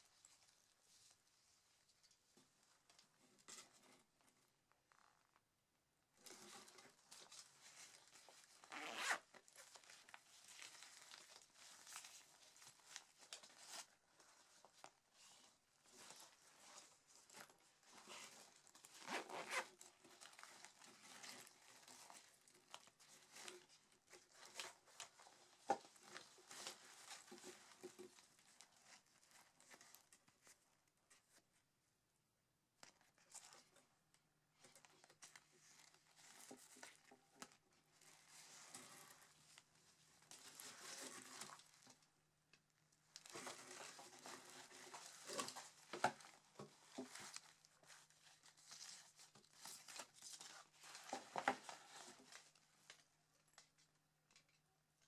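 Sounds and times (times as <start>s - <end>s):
nylon fabric rustling: 6.2s - 30.1s
zippers pulled open and shut: 8.7s - 9.3s, 19.0s - 19.7s.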